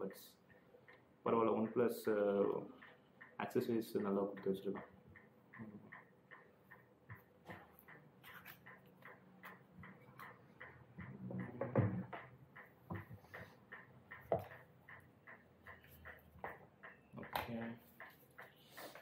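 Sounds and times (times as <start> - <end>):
light regular ticking: 0.0 - 19.0
knock on wooden table: 11.3 - 12.3.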